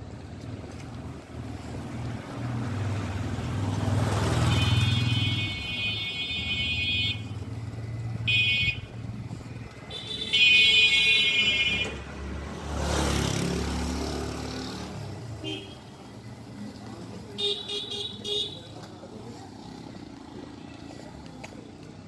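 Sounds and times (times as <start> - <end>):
engine and tyre noise: 0.0 - 22.0
vehicles passing on a street: 0.0 - 22.0
high-pitched vehicle horn: 4.4 - 7.2.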